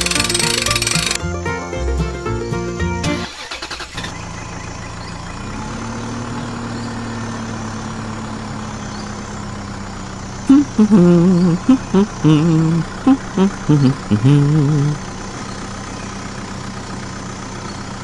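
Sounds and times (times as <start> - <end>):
toy tractor motor hum: 0.0 - 1.2, 10.4 - 15.1
music: 0.0 - 3.6.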